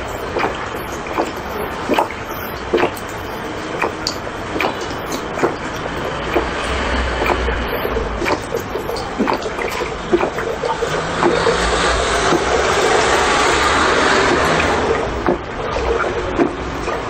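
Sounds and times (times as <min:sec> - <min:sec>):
liquid rushing in a bottle: 0:00.0 - 0:17.0
person gulping: 0:07.2 - 0:12.7.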